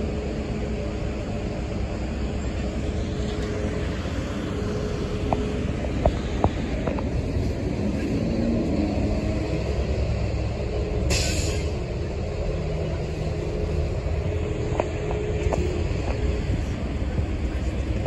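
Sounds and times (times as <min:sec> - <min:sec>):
traffic engines and tyres rumbling: 0:00.0 - 0:18.0
air brakes hissing: 0:11.1 - 0:11.9.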